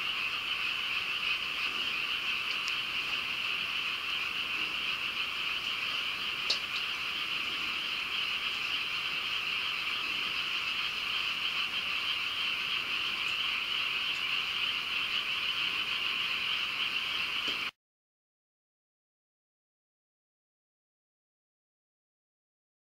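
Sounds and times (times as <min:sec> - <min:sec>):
chorus of frogs calling: 0:00.0 - 0:17.7.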